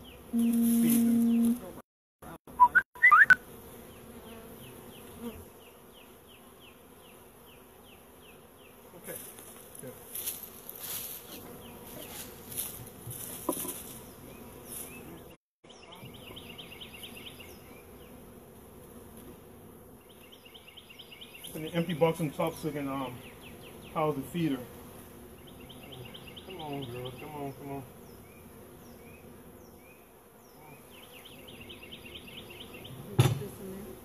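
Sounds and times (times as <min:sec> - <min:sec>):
bees buzzing: 0:00.0 - 0:01.8, 0:02.6 - 0:15.4, 0:16.1 - 0:34.0
quick high chirping: 0:02.6 - 0:03.4.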